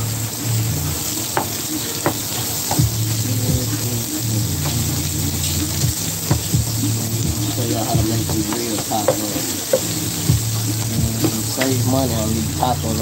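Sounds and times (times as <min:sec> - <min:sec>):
meat sizzling on a griddle: 0:07.5 - 0:10.8.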